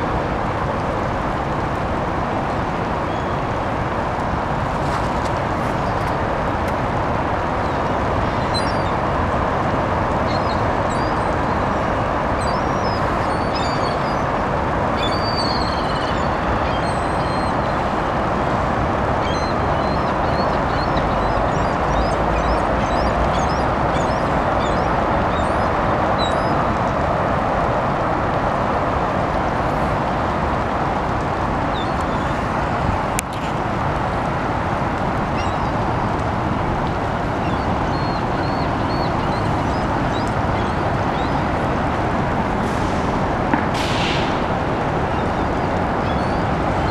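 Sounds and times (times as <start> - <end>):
city traffic: 0.0 - 46.9
gulls calling: 7.4 - 9.3, 10.0 - 18.3, 19.1 - 26.7, 35.1 - 42.0, 44.2 - 46.9.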